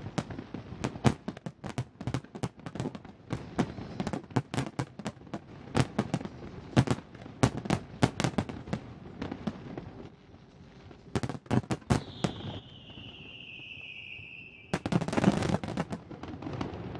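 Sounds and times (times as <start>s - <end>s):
fireworks bursting: 0.0s - 16.9s
falling firework whistle: 3.4s - 4.3s, 10.8s - 16.9s.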